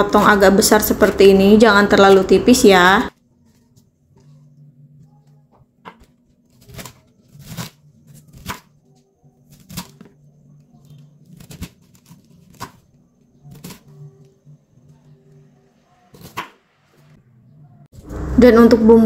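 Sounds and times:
faint low hum: 3.1s - 19.0s
knife cutting cabbage on wooden board: 5.9s - 8.7s, 9.5s - 10.1s, 11.2s - 12.8s, 13.4s - 14.0s, 16.1s - 16.6s.

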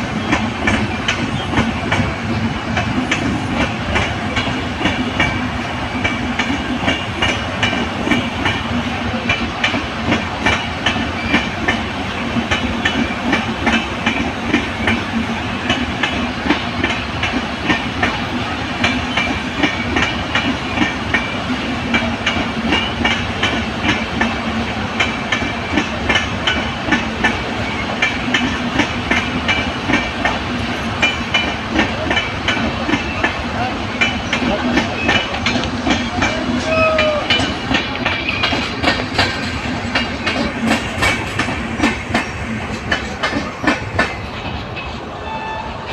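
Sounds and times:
train wheels clattering over rail joints: 0.0s - 45.1s
continuous train rumble: 0.0s - 45.9s.

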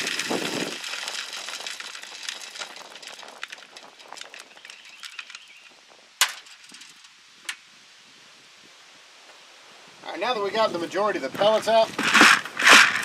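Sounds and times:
pellets pattering into bucket: 0.0s - 5.4s, 11.4s - 13.0s.

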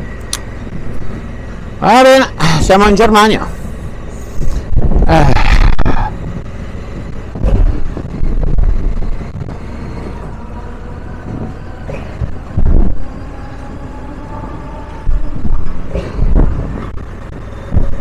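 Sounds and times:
wind and road noise: 0.0s - 18.0s
motorcycle engine: 3.4s - 18.0s.

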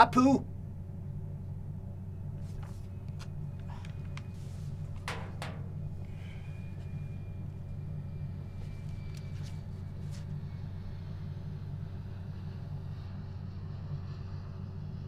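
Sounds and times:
low room hum: 0.0s - 15.0s
papers rustling and clicking: 2.4s - 6.1s, 8.6s - 10.3s.

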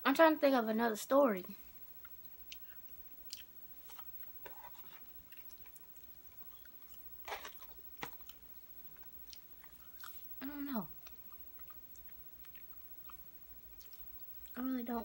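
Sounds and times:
person chewing food: 1.8s - 14.6s.

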